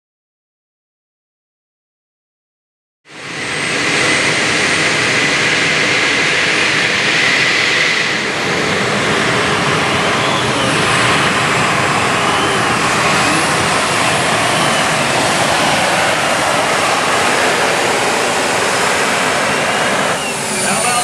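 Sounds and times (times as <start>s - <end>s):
high whine: 3.1s - 21.0s
tractor engine revving loud: 5.9s - 21.0s.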